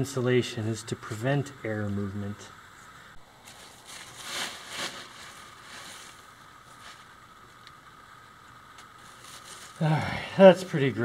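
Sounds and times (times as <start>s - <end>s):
insulation rustling: 1.0s - 11.0s.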